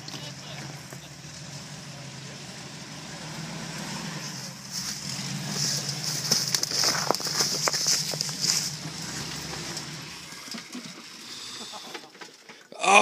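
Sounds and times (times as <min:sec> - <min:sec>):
truck engine at low revs: 0:00.0 - 0:12.1
truck knocking and scraping on rocks: 0:04.4 - 0:10.8.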